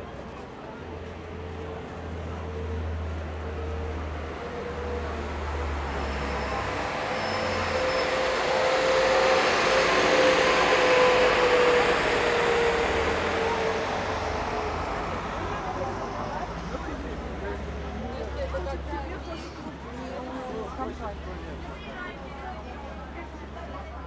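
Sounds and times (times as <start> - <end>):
steady whine: 5.8 - 16.4.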